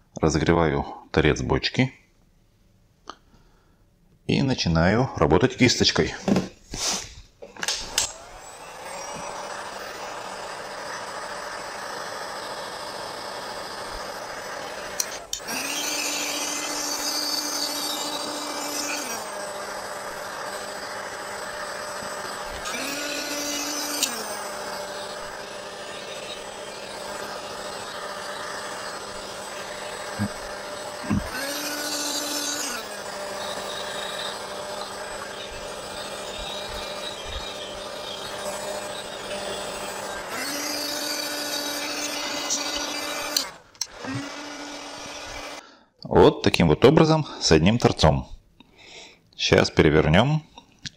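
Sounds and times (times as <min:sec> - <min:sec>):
heat gun fan humming: 0:07.4 - 0:45.8.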